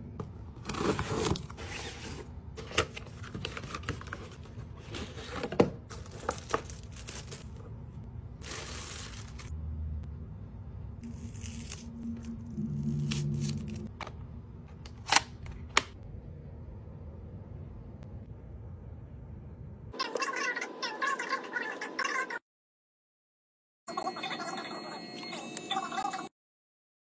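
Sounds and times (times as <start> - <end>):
cardboard and plastic rustling: 0.6 - 7.7, 8.4 - 9.5.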